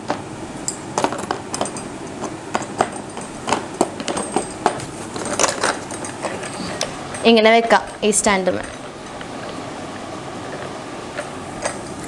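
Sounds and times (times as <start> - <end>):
mixer parts clicking and clinking: 0.0 - 9.2.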